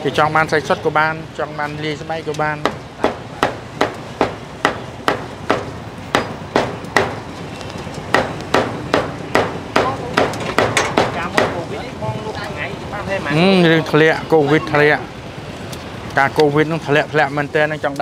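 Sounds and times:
cleaver chopping on wooden block: 2.6 - 7.2, 8.1 - 11.6.

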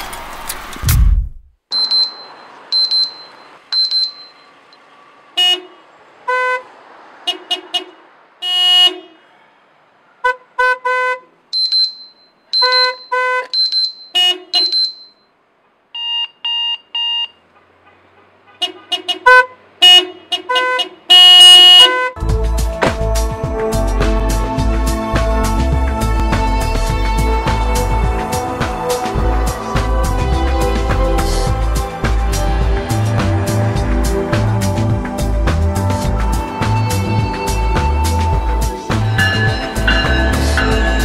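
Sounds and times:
electronic alarm beeping: 1.7 - 4.5, 11.6 - 15.3, 16.0 - 17.4
car horns honking: 1.7 - 9.3, 10.2 - 41.0.

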